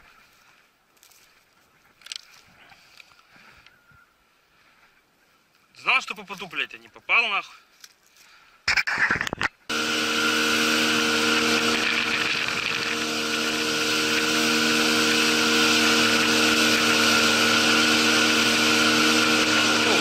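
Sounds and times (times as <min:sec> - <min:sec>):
boat motor droning: 0:09.7 - 0:20.0.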